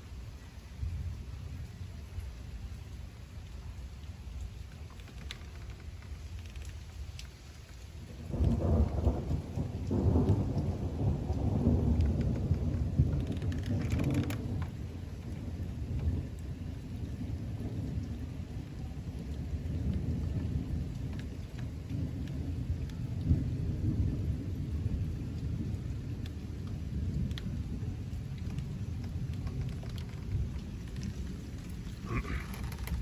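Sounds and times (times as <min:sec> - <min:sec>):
rain falling: 0:00.0 - 0:33.0
thunder rumbling: 0:08.1 - 0:33.0.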